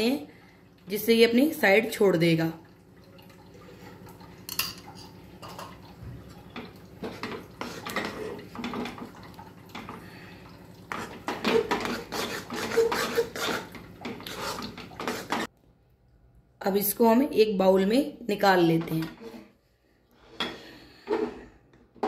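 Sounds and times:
metal spoon scraping a pan: 0:07.0 - 0:08.5, 0:10.9 - 0:15.5.

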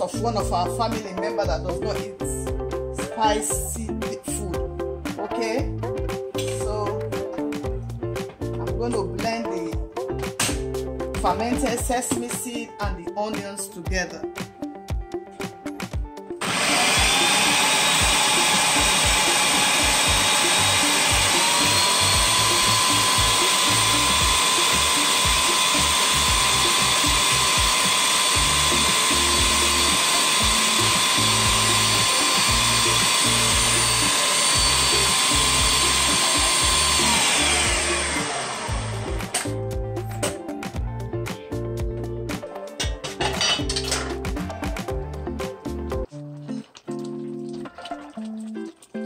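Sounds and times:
blender motor running: 0:16.4 - 0:39.7.

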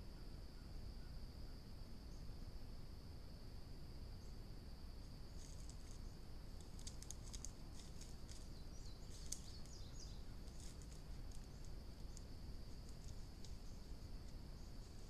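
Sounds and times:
low hiss: 0:00.0 - 0:15.0
bird chirps: 0:08.3 - 0:10.6.

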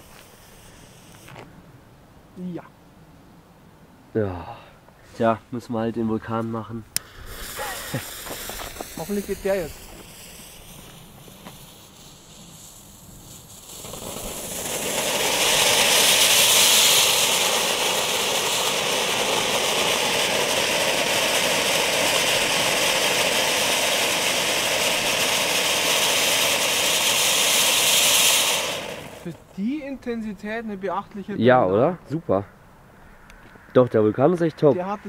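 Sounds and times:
firework fountain hissing: 0:00.0 - 0:01.4, 0:07.0 - 0:29.6.

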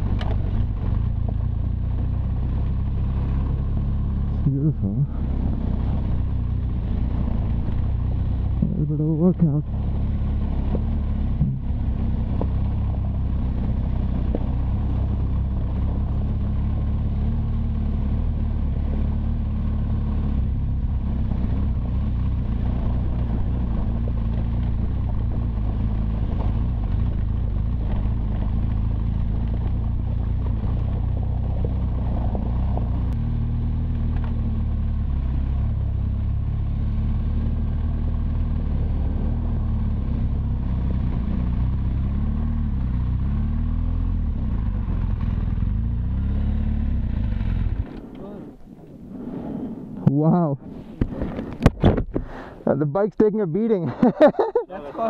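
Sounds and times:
motorcycle engine running: 0:00.0 - 0:48.6
wind and road noise hiss: 0:11.8 - 0:53.0.

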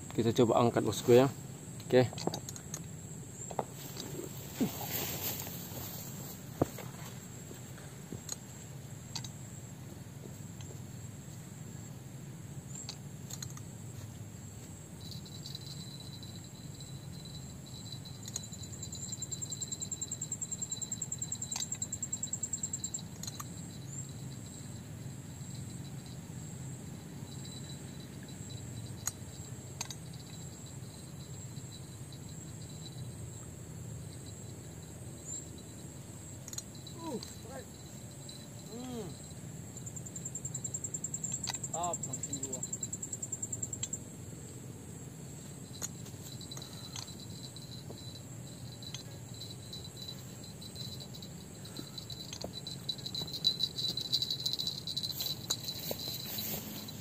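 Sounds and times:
insects chirring: 0:00.0 - 0:57.0
low outdoor rumble: 0:21.9 - 0:57.0.

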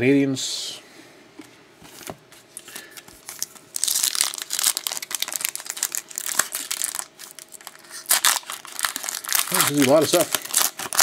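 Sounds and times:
card pack wrapper tearing: 0:03.2 - 0:11.0.

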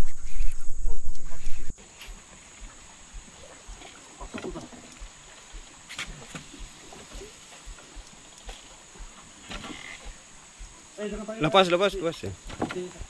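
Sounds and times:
paddle splashes: 0:01.8 - 0:13.0
knocks against canoe hull: 0:12.4 - 0:13.0.

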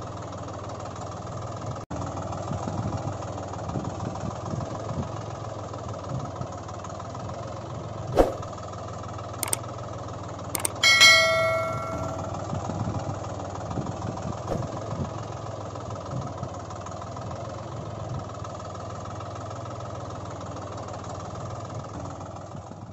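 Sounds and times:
bright chime: 0:10.6 - 0:12.4.

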